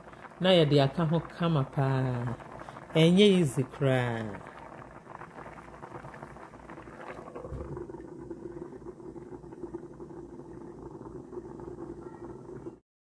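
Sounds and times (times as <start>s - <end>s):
water boiling: 0.0s - 12.8s
low hum: 6.3s - 12.8s.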